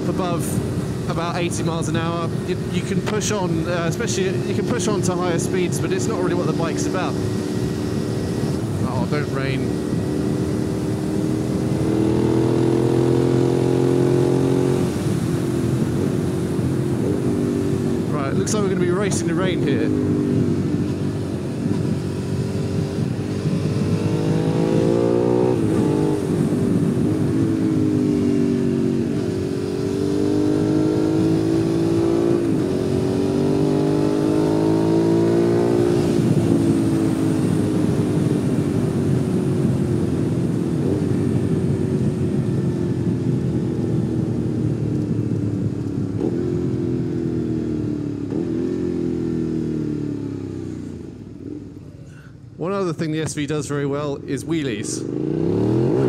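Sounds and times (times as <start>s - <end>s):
wind noise: 0.0s - 46.5s
motorcycle engine revving: 0.0s - 51.8s, 54.9s - 56.0s.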